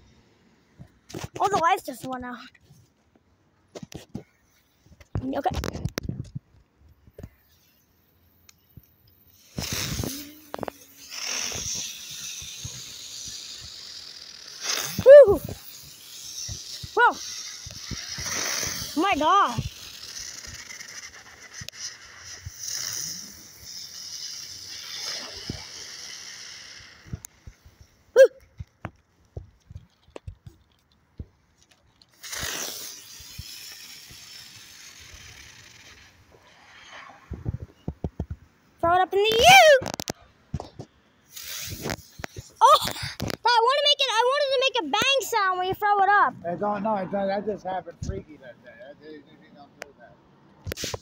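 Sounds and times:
fireworks hissing: 9.2s - 28.2s, 32.1s - 38.4s, 41.2s - 46.4s, 50.6s - 51.0s
fireworks crackling: 9.3s - 31.3s, 32.0s - 46.4s, 50.6s - 51.0s.

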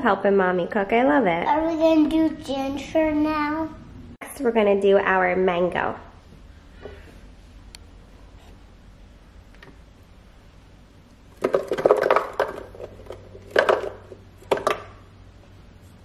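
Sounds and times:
fruit chunks knocking in plastic jar: 11.3s - 15.0s.

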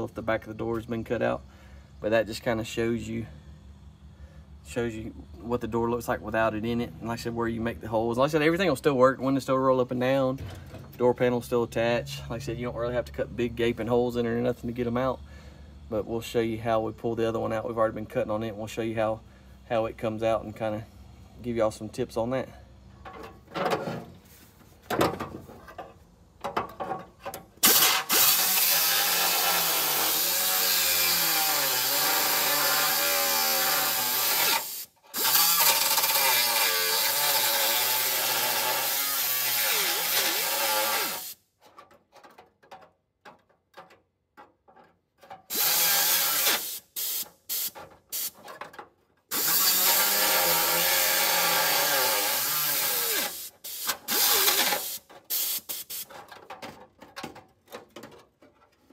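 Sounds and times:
air cut-off tool cutting steel: 27.6s - 41.4s, 45.5s - 48.4s, 49.3s - 56.1s.

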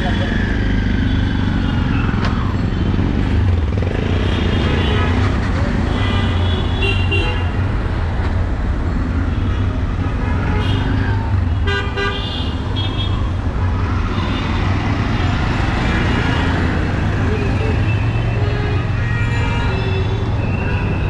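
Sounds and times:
vehicle engines droning: 0.0s - 6.5s, 12.5s - 21.0s.

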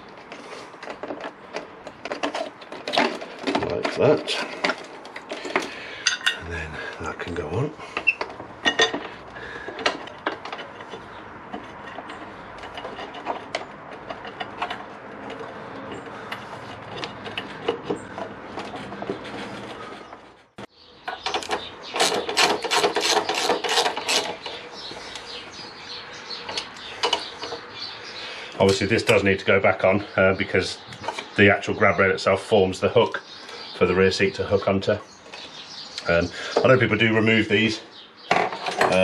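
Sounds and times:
parts knocking and clicking: 0.0s - 7.1s, 7.8s - 27.8s, 28.5s - 29.4s, 30.8s - 31.5s, 38.2s - 39.0s.

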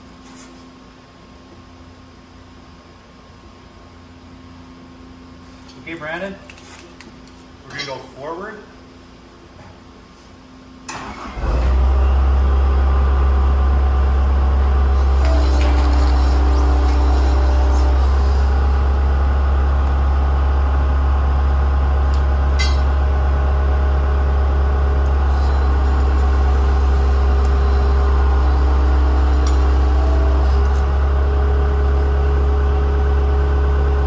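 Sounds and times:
skid steer diesel engine humming: 10.9s - 34.0s.

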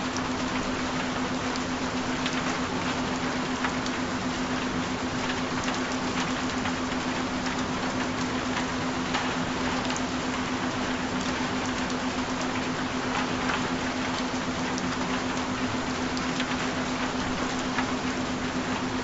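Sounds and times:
rain falling: 0.0s - 19.0s.

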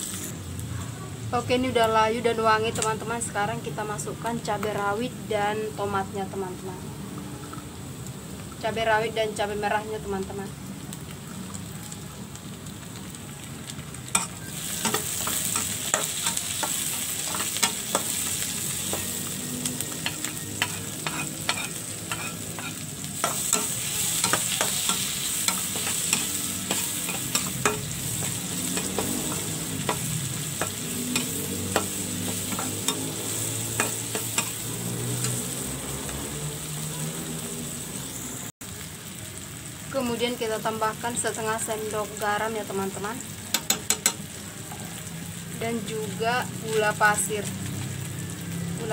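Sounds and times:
vegetables sizzling in oil: 0.0s - 48.9s
spatula scraping pan: 20.0s - 35.5s.

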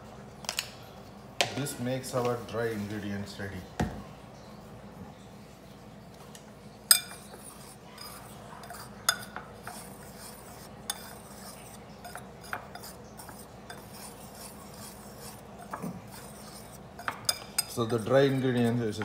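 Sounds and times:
whisk wires clinking on bowl: 6.9s - 19.0s
whisk swishing in flour: 7.1s - 19.0s.

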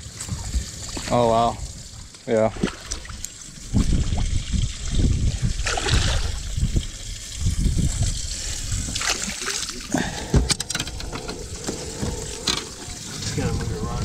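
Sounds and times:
fish splashing in water: 5.5s - 7.0s, 7.9s - 10.3s.

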